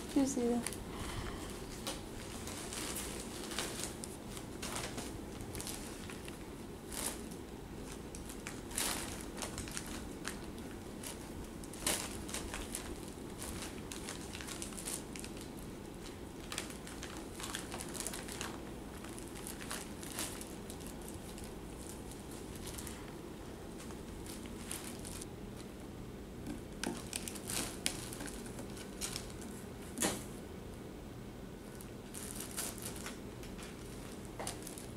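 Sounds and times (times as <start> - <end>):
plastic packing crinkling: 1.5 - 25.7, 26.5 - 30.3, 31.6 - 34.9.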